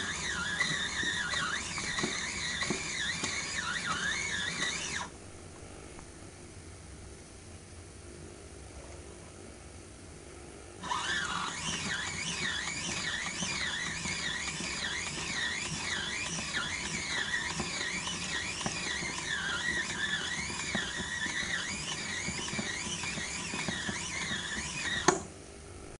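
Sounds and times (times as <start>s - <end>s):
toy washing machine squeaking: 0.0s - 5.1s, 10.8s - 25.2s.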